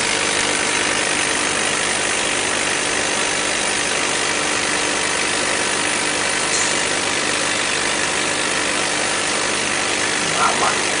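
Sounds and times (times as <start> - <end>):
ventilation fans and pumps droning: 5.4 - 11.0.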